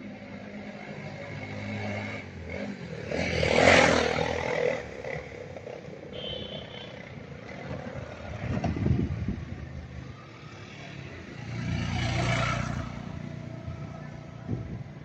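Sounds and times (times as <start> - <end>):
vehicle passing by: 7.4 - 14.8.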